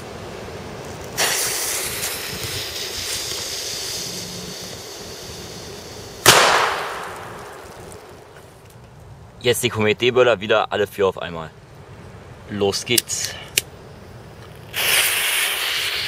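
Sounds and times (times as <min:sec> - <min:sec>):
firecracker fuse hissing: 0:00.8 - 0:08.4, 0:13.1 - 0:16.0
firecracker bang: 0:01.2 - 0:03.2, 0:06.2 - 0:08.2.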